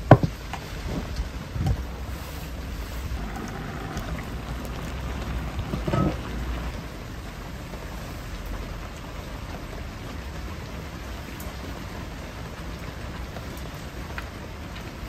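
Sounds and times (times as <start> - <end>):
rain falling: 0.0 - 15.0
low rumble: 0.8 - 9.0.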